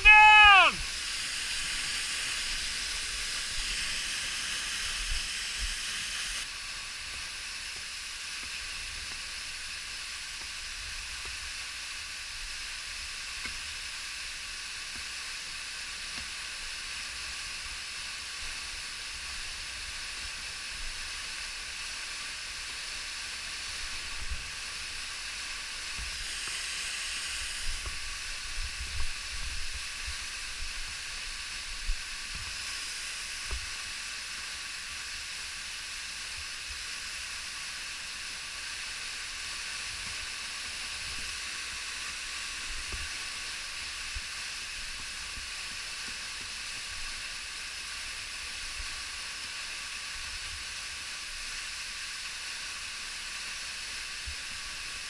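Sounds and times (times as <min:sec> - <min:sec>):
waterfall rushing: 0:00.0 - 0:06.9, 0:17.8 - 0:45.7.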